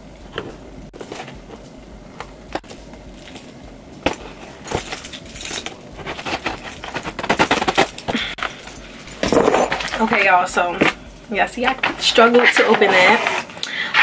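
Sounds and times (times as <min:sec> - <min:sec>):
key scraping packing tape: 0:04.2 - 0:10.1
keys jangling on a ring: 0:04.7 - 0:05.8, 0:07.8 - 0:09.9.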